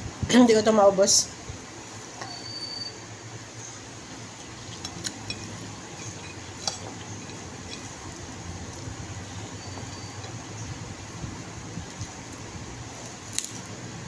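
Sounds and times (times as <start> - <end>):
steady low hum: 0.0 - 14.0
faint chewing: 4.3 - 10.4.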